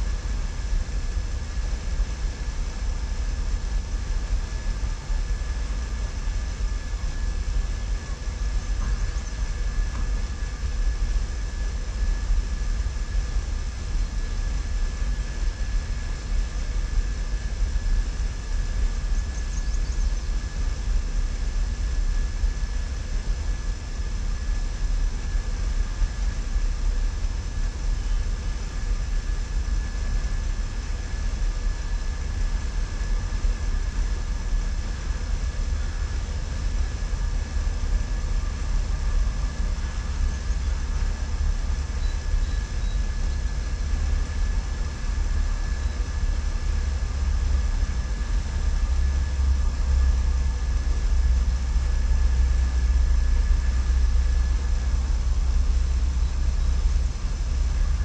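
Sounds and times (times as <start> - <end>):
faint high whine: 0.0 - 58.0.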